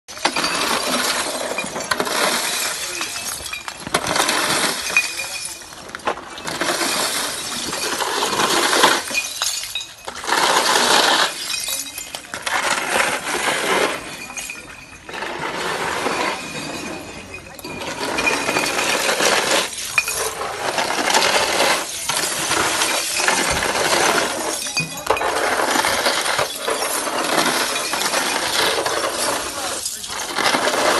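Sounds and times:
broken glass crunching: 0.1s - 30.9s
glass bottles clinking: 0.1s - 30.9s.

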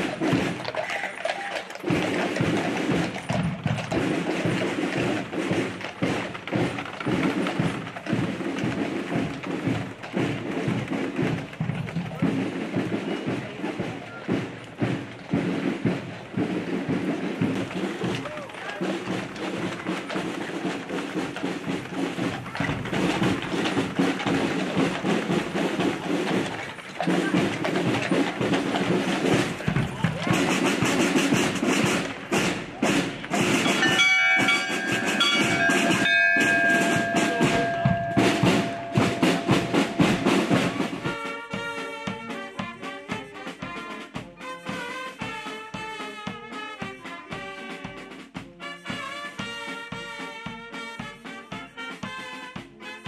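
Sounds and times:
people talking: 0.0s - 2.6s, 11.8s - 48.2s
wooden wheels rumbling: 0.0s - 41.9s
horse hooves clopping on pavement: 0.0s - 53.0s.

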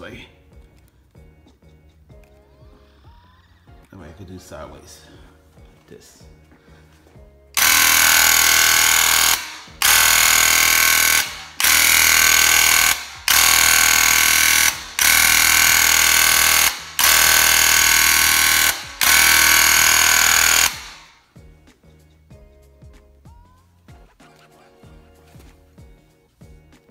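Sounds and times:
paint sprayer buzzing hiss: 7.6s - 21.2s.

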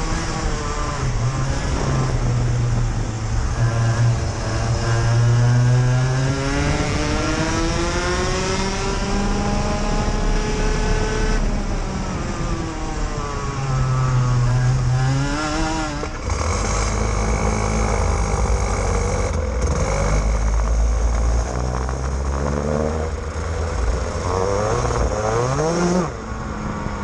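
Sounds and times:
kart engine at full throttle: 0.0s - 27.0s
second kart engine: 0.0s - 27.0s.

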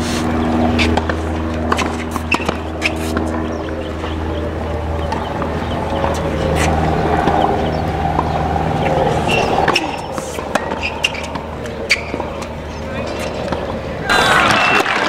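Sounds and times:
steady low hum: 0.0s - 14.8s
crowd chatter: 3.3s - 15.0s.

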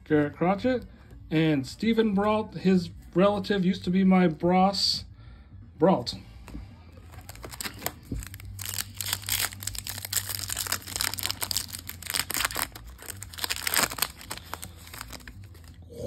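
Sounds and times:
foil wrapper crinkling and tearing: 7.1s - 15.8s.

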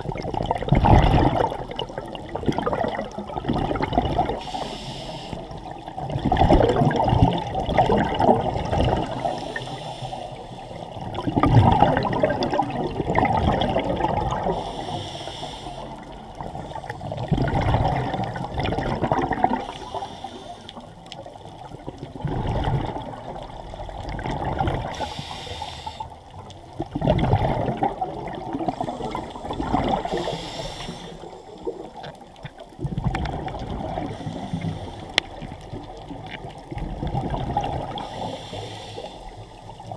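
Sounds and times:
exhaled bubbles burbling: 0.0s - 4.6s, 5.5s - 9.6s, 10.8s - 14.7s, 16.0s - 20.0s, 21.1s - 25.1s, 26.6s - 38.3s
regulator inhale hiss: 4.4s - 5.8s, 9.1s - 11.0s, 14.5s - 17.2s, 19.6s - 21.0s, 24.9s - 26.3s, 28.7s - 31.8s, 34.1s - 35.3s, 37.9s - 39.8s.

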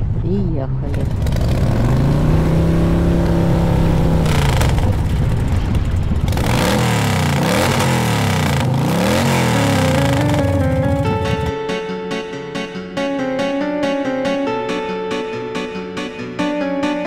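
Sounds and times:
wind: 0.0s - 9.5s
motorboat engine: 0.8s - 11.6s.

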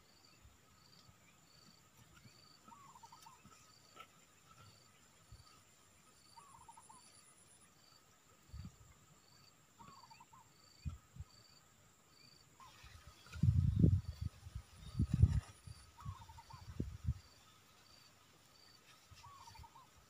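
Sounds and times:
insects whining and chirping: 0.0s - 20.0s
insect warbling call: 2.7s - 3.5s, 6.2s - 7.3s, 9.8s - 10.9s, 12.3s - 17.3s.

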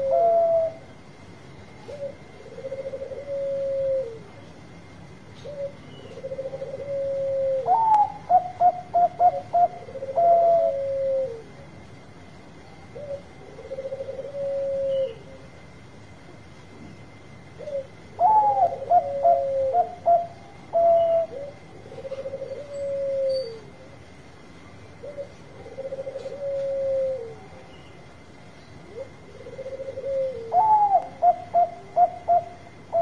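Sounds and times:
dove cooing and trilling: 0.0s - 0.9s, 1.7s - 4.4s, 5.4s - 11.6s, 12.8s - 15.5s, 17.5s - 24.0s, 25.0s - 28.0s, 28.8s - 33.0s.

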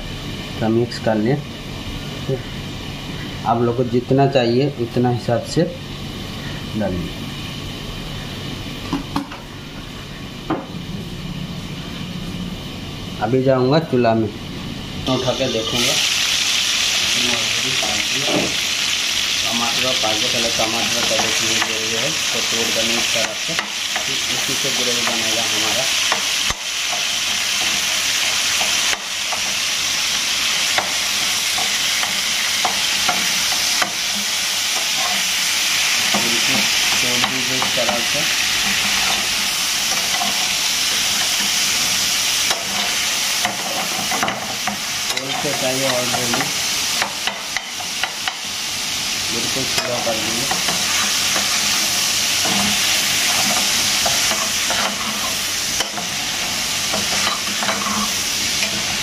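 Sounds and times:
food sizzling in hot oil: 14.4s - 59.0s
metal spoon scraping pan: 56.9s - 58.9s.

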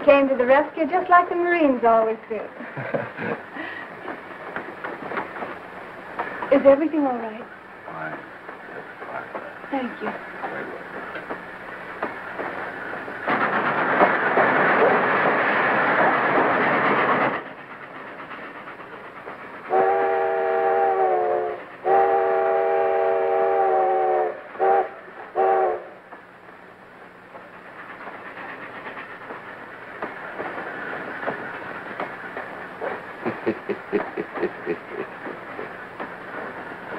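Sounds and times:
train rumbling and clattering: 0.0s - 36.9s
steam locomotive whistle: 19.7s - 26.0s.

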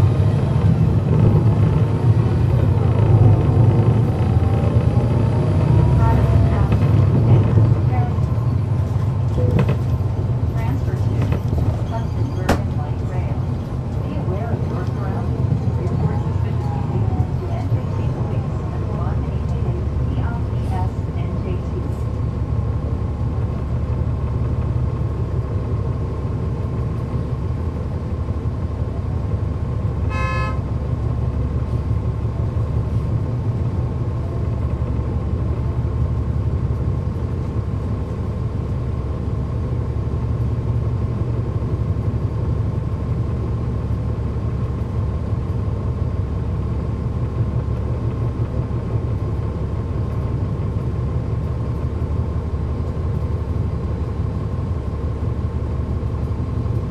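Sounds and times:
bus diesel engine running: 0.0s - 56.9s
short horn toot: 30.1s - 30.7s.

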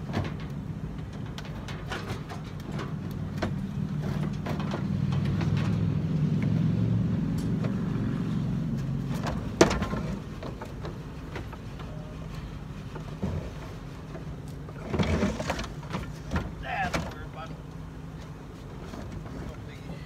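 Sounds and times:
idling vehicle engine hum: 0.0s - 20.0s
pressure washer clattering and scraping: 0.0s - 20.0s.

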